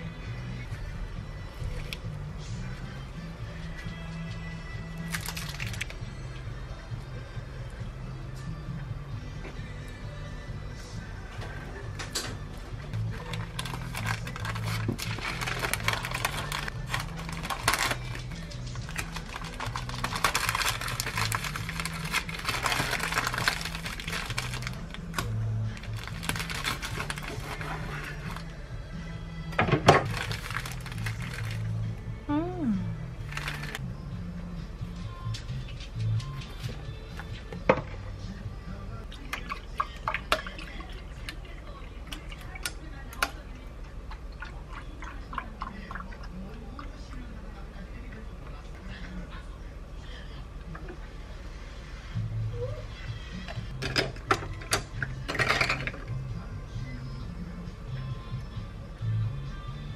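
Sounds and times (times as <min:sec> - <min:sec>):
ice cubes clicking and crackling: 0:05.1 - 0:05.9, 0:13.1 - 0:28.4, 0:30.0 - 0:31.6, 0:33.3 - 0:33.8
paper crinkling and rustling: 0:05.1 - 0:05.9, 0:13.1 - 0:28.5, 0:30.0 - 0:31.6, 0:33.2 - 0:33.8.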